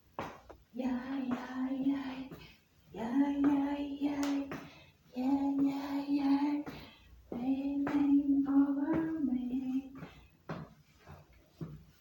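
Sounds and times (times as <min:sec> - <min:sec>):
woman singing long held notes: 0:00.8 - 0:10.1.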